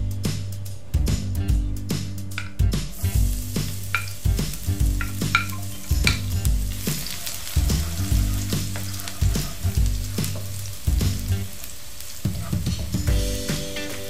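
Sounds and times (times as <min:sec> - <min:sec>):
garlic sizzling in hot oil: 0:02.4 - 0:14.0
wooden spoon scraping a pan: 0:03.0 - 0:10.8.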